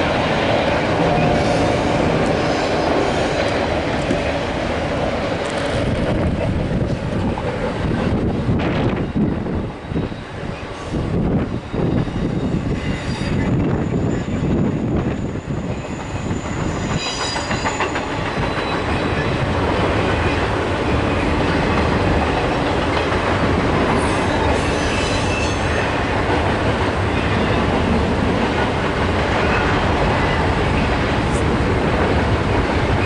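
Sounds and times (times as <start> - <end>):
high wheel squeals: 11.6 - 19.2, 24.0 - 26.0.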